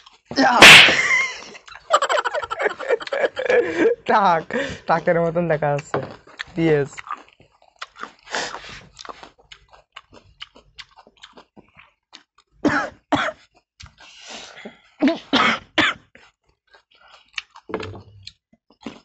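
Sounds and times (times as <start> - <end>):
chewing and crunching onion: 0.0 - 0.3, 1.6 - 2.4, 5.2 - 14.9, 16.0 - 19.0
person coughing: 12.6 - 13.4, 15.0 - 16.0.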